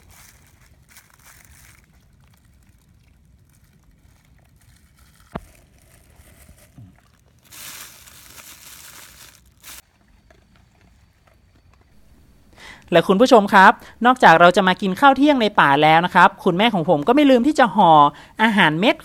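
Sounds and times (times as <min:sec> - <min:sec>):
plastic food bags crinkling: 0:00.0 - 0:10.9.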